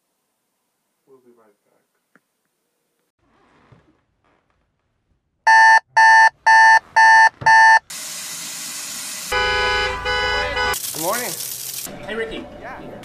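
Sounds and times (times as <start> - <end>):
alarm clock beeping: 5.5 - 7.8.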